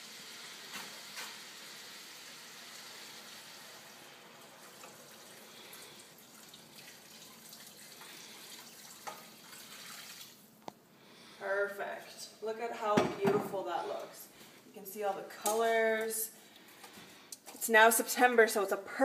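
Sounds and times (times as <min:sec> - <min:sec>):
water pouring into a pot: 0:00.0 - 0:10.5.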